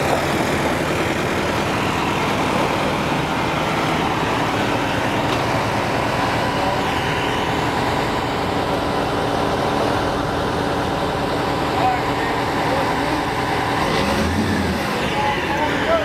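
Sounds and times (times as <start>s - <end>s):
diesel engine idling: 0.0s - 16.0s.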